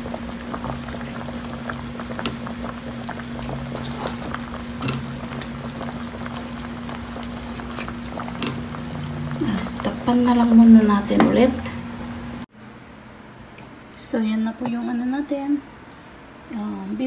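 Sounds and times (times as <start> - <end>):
broth bubbling in a pot: 0.0 - 11.6
low hum: 0.0 - 12.5.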